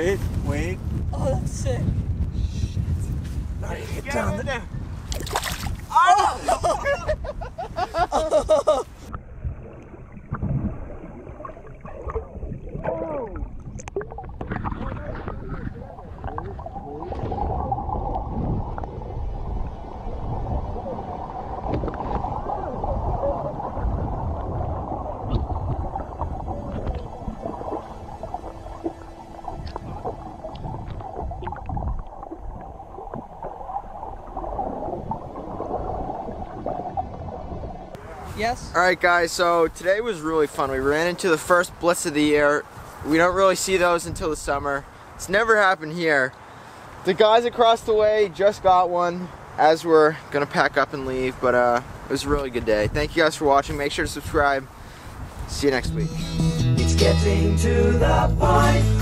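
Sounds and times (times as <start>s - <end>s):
muffled water sloshing: 5.0s - 6.0s, 7.2s - 38.4s
muffled underwater gurgling: 9.1s - 38.2s.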